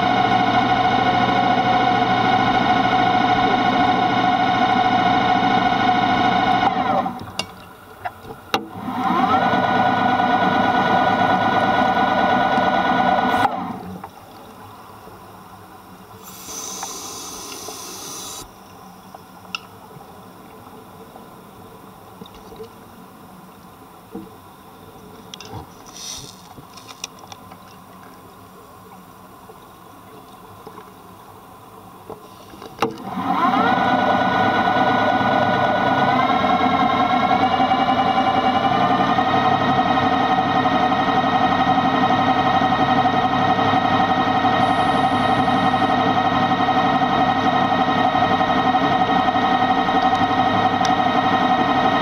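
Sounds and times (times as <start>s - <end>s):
muffled underwater ambience: 13.3s - 32.8s, 37.4s - 52.0s
diver breathing: 16.2s - 18.5s.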